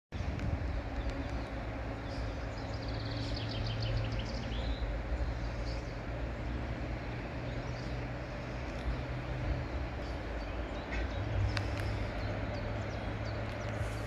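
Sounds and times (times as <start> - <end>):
low outdoor rumble: 0.2 - 14.0
songbird singing: 0.2 - 14.0.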